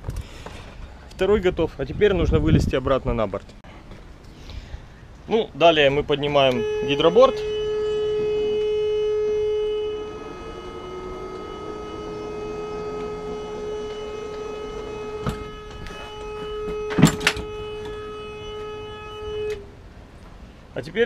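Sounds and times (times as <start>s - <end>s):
hydraulic pump whining: 6.4s - 19.7s.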